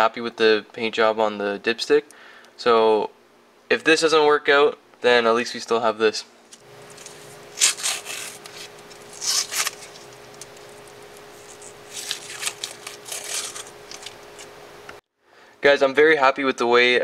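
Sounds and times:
faint steady hum: 0.0 - 17.0
masking tape rubbing and rustling: 6.6 - 14.6.

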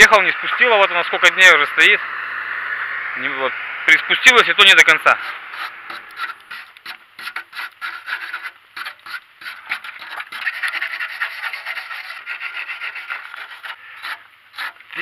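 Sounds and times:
stiff brush scrubbing metal: 4.8 - 15.0.

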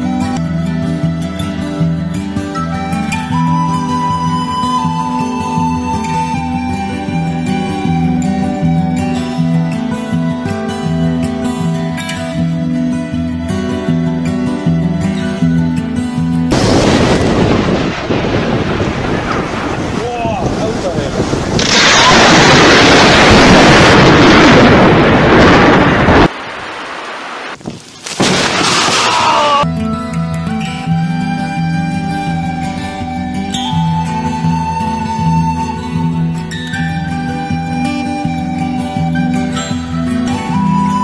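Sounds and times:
music: 0.0 - 18.2, 29.6 - 41.0
plucked acoustic guitar melody: 0.0 - 18.2, 29.7 - 41.0
wind and rain on microphone: 16.5 - 29.1.

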